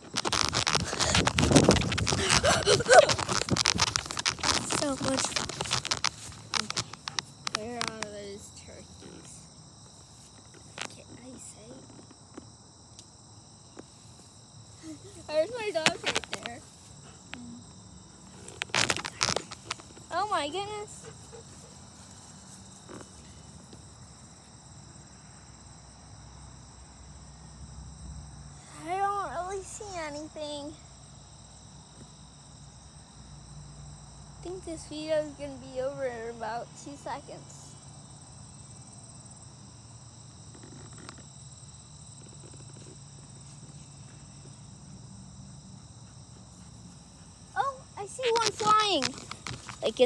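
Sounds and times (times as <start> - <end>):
faint taps and rustles: 0.0 - 8.2, 18.3 - 23.9, 48.1 - 50.0
high-pitched insect chorus: 0.0 - 50.0.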